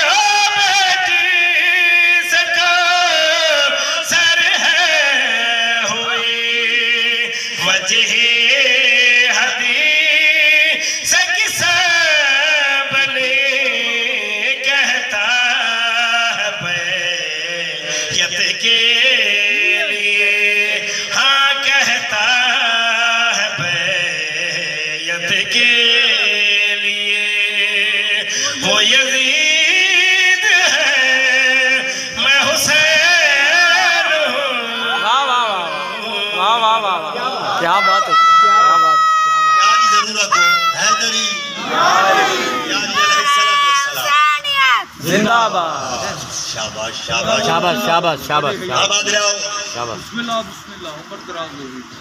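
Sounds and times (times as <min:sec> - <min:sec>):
man chanting into a microphone: 0:00.0 - 0:37.2.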